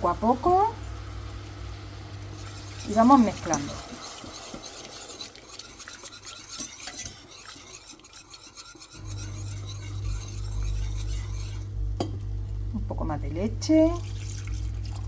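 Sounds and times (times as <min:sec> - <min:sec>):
steady low hum: 0:00.0 - 0:07.6, 0:08.9 - 0:15.0
whisk scraping a saucepan: 0:02.2 - 0:11.8, 0:13.7 - 0:15.0.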